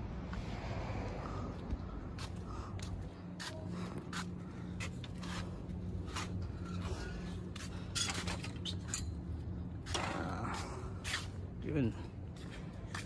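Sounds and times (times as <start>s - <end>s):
steady low hum: 0.0s - 13.0s
footsteps on concrete: 1.6s - 6.4s, 12.3s - 13.0s.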